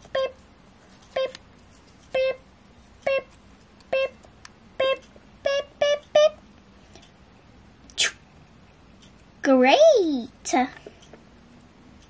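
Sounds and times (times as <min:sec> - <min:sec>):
self-timer beeps: 0:00.0 - 0:00.4, 0:02.1 - 0:02.4, 0:03.9 - 0:04.2, 0:04.8 - 0:06.4.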